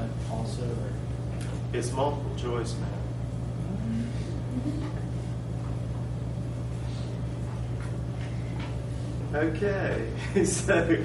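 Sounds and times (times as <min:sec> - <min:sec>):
low mechanical hum: 0:00.0 - 0:11.0
faint murmurs: 0:03.6 - 0:05.2.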